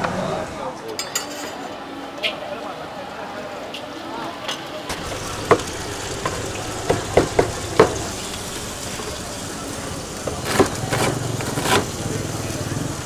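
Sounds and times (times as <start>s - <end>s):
spatula striking wok: 4.9s - 9.2s
noodles sizzling in a wok: 4.9s - 13.0s.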